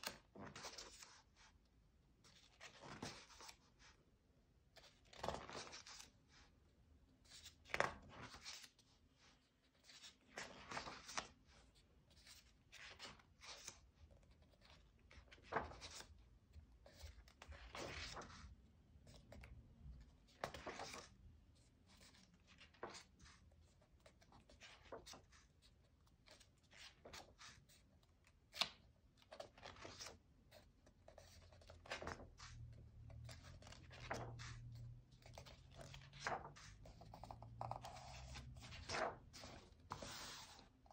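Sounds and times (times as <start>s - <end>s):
paper pages rustling: 0.0s - 1.5s, 2.3s - 4.0s, 4.8s - 6.5s, 7.2s - 21.2s, 21.8s - 40.9s
hands sliding over paper: 37.9s - 40.7s.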